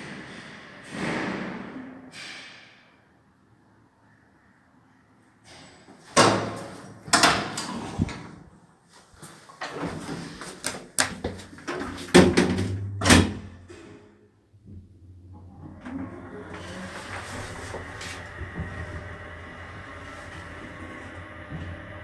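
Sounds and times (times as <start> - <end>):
metal lift doors clanking: 12.2 - 14.0.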